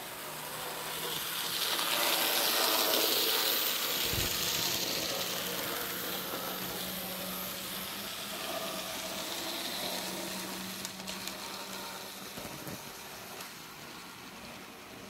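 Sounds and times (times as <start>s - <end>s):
model train wheels rattling: 0.3s - 14.7s.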